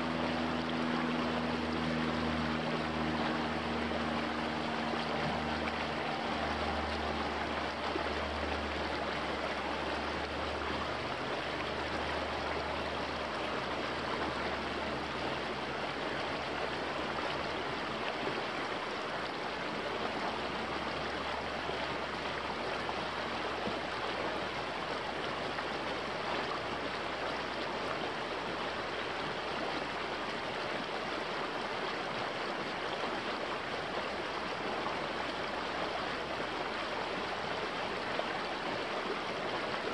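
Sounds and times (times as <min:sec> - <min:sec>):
low drone: 0:00.0 - 0:22.1
creek rushing over rocks: 0:00.0 - 0:39.9.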